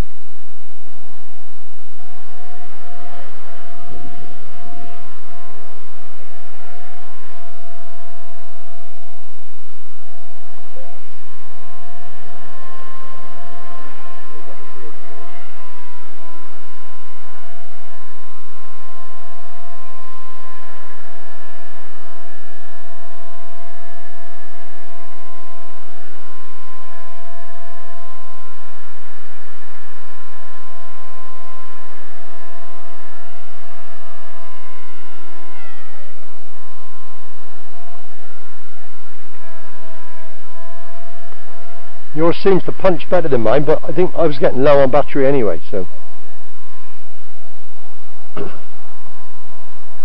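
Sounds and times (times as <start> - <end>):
rc helicopter whine: 0.0 - 50.0.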